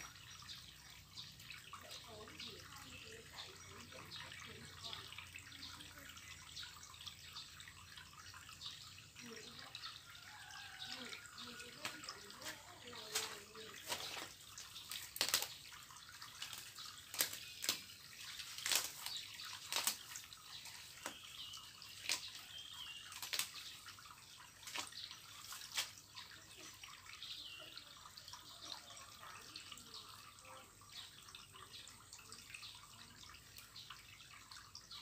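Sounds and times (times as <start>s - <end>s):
wet rustle of leaves: 0.0s - 35.0s
weeds snapping and tearing: 13.1s - 15.6s, 16.2s - 21.2s, 21.9s - 22.4s, 23.0s - 23.6s, 24.6s - 25.9s.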